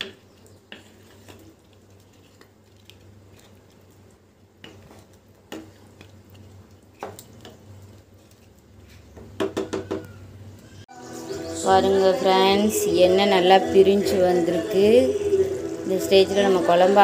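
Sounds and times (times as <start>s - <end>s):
wooden spatula scraping pan: 0.0s - 3.7s.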